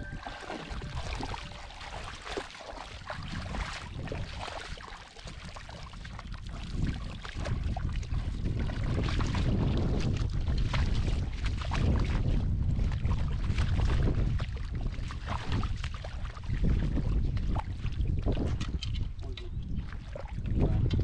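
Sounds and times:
low rumble: 0:00.0 - 0:02.4
water sloshing and splashing: 0:00.0 - 0:21.0.

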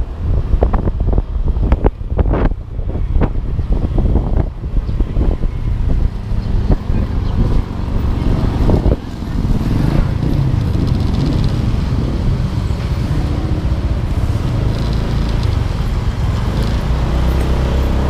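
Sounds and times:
road noise: 0:00.0 - 0:18.0
wind buffeting microphone: 0:00.0 - 0:18.0
scooter engine: 0:05.4 - 0:18.0.

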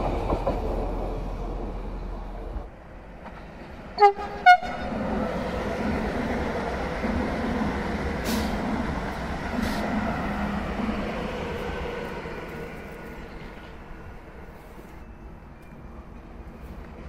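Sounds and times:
train wheels rumbling on rail: 0:00.0 - 0:17.0
train horn toots: 0:04.0 - 0:04.9.

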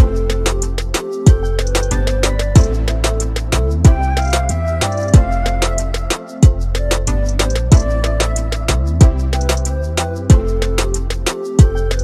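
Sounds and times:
hi-hat ticks: 0:00.0 - 0:12.0
sustained bass: 0:00.0 - 0:12.0
deep kick drums: 0:02.6 - 0:02.9, 0:03.8 - 0:04.2, 0:05.2 - 0:05.4, 0:06.4 - 0:06.6, 0:07.7 - 0:08.0, 0:09.0 - 0:09.3, 0:10.3 - 0:10.6.

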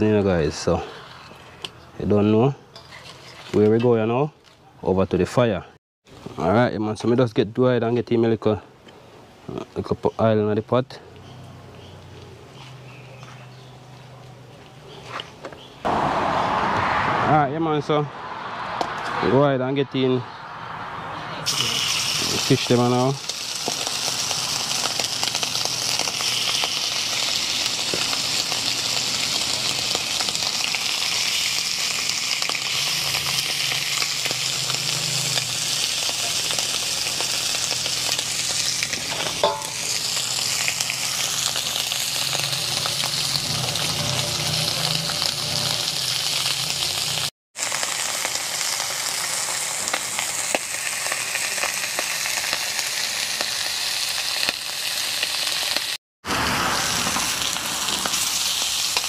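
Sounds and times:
fish sizzling in hot oil: 0:21.5 - 0:59.0.

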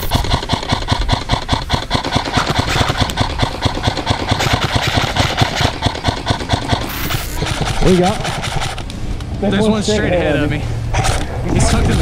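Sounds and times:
airsoft rifle firing full auto: 0:00.0 - 0:08.8.

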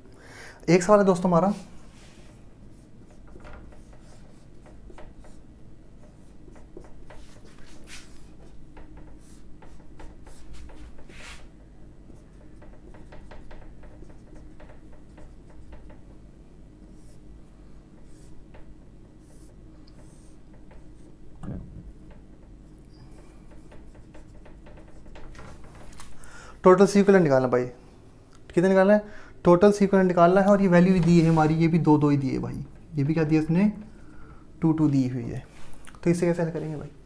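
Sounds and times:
faint low hum: 0:00.0 - 0:37.0
marker drawing on whiteboard: 0:00.8 - 0:16.2, 0:16.8 - 0:17.3, 0:18.0 - 0:21.3, 0:22.0 - 0:26.1, 0:29.6 - 0:32.3.

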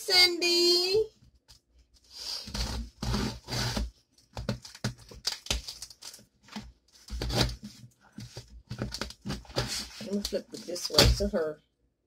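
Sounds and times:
tape and cardboard crackling: 0:02.5 - 0:11.3.

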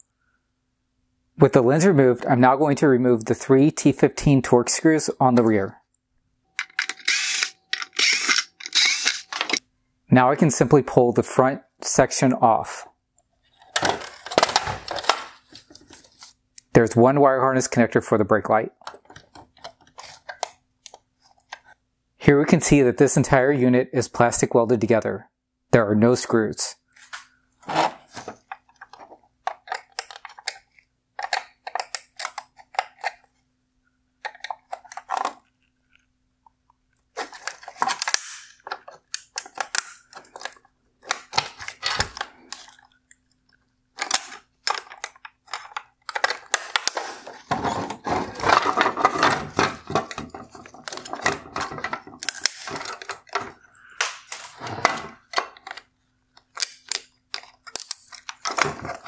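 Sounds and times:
plastic scraping and clattering: 0:27.0 - 0:33.2, 0:44.0 - 0:53.6, 0:54.3 - 0:55.9, 0:57.4 - 0:59.0
hard plastic parts clicking: 0:28.4 - 0:33.2, 0:44.0 - 0:59.0.

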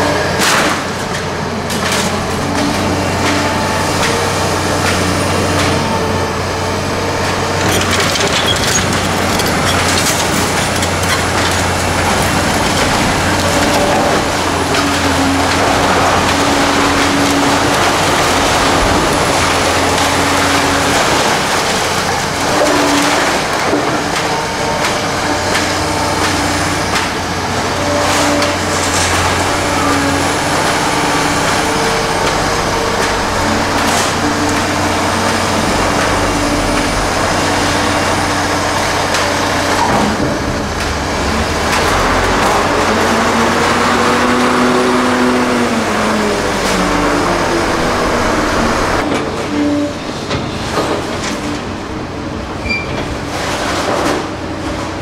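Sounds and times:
excavator engine and hydraulics: 0:00.0 - 0:55.0
debris breaking: 0:00.3 - 0:05.8, 0:07.4 - 0:45.4.

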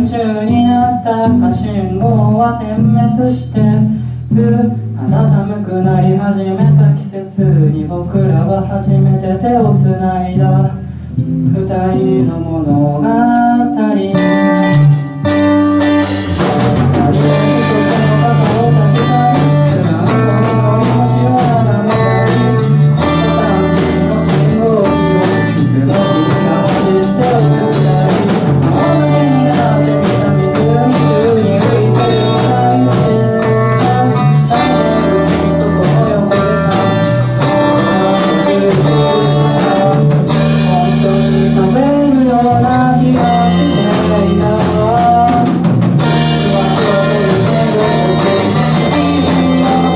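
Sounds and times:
drums hitting steadily: 0:00.0 - 0:07.0, 0:12.1 - 0:49.9
person singing: 0:00.0 - 0:49.9
live band playing: 0:13.3 - 0:49.9.

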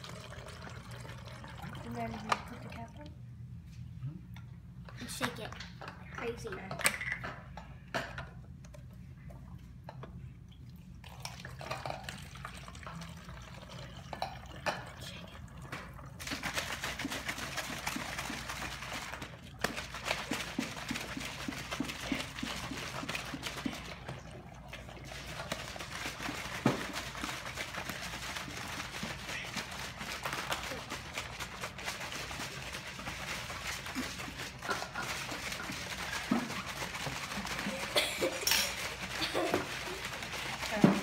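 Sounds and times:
liquid pouring into plastic bottle: 0:00.0 - 0:03.2, 0:10.5 - 0:14.8.

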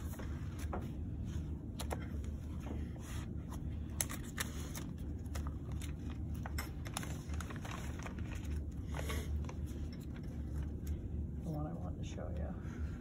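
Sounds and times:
low room hum: 0:00.0 - 0:13.0
paper pages rustling: 0:01.7 - 0:11.0.

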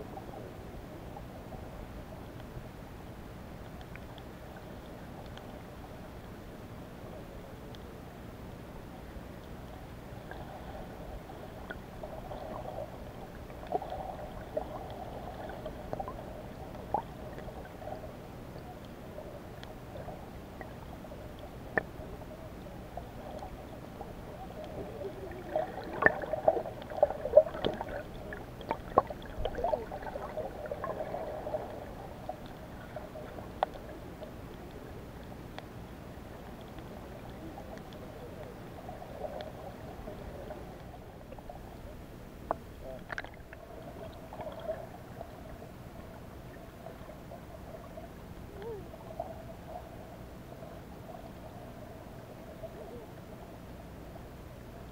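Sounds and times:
underwater murmur: 0:10.2 - 0:35.2, 0:42.6 - 0:53.7.

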